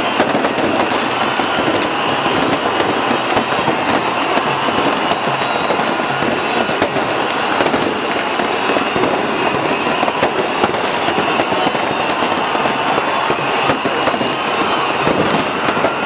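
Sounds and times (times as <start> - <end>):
crowd celebrating: 0.0 - 16.0
fireworks banging and crackling: 0.0 - 16.0.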